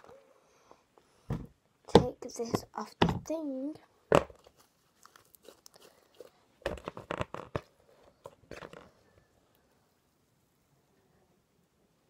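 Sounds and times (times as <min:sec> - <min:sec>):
crinkly rustling and crackling: 0:04.4 - 0:09.3.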